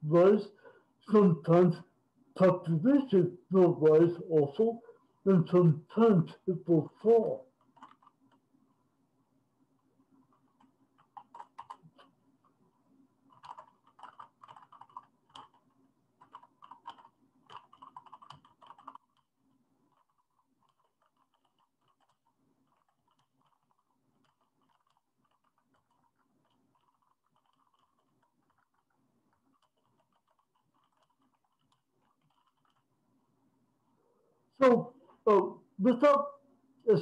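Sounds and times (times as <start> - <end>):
computer keyboard typing: 7.2 - 8.4, 10.4 - 12.1, 13.3 - 32.9.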